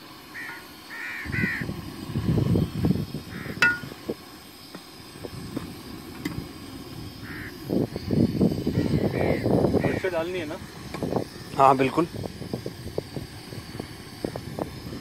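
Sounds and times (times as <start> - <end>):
crows cawing: 0.3 - 1.7, 3.3 - 3.7, 7.2 - 7.6, 8.8 - 10.2
sharp clink: 3.6 - 3.9.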